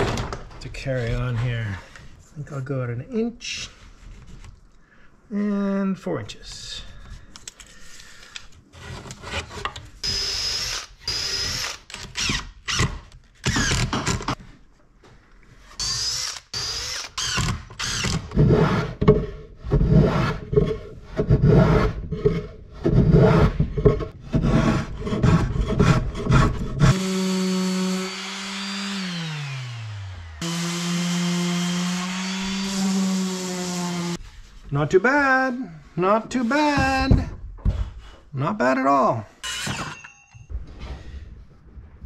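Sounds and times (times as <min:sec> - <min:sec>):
orbital sander humming: 0:26.9 - 0:34.2.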